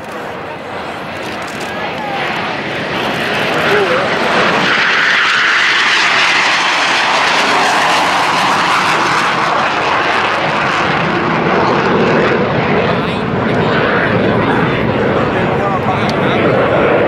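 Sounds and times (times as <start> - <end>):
jet engines passing low: 0.0 - 17.0.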